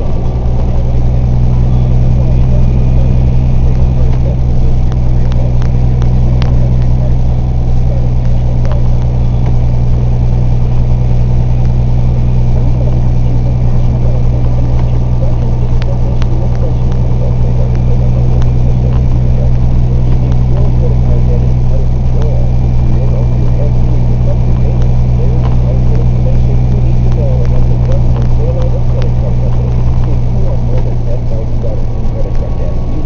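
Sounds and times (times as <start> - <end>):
truck engine drone: 0.0 - 33.0.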